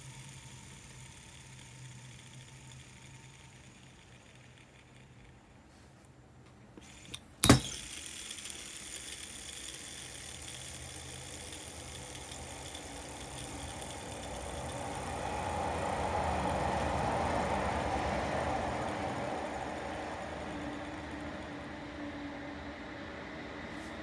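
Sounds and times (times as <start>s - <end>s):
fishing reel click: 0.0s - 5.4s, 6.8s - 16.7s
fishing reel gears whirring: 0.0s - 5.6s, 6.8s - 22.1s.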